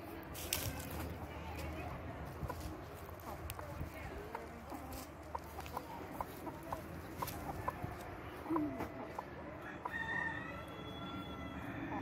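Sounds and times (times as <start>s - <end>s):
chickens clucking softly: 0.8s - 12.0s.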